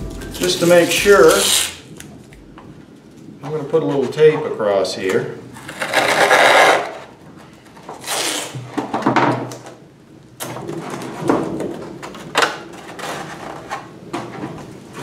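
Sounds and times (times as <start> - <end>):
adhesive tape ripping off roll: 0.4 - 2.3, 8.0 - 8.7.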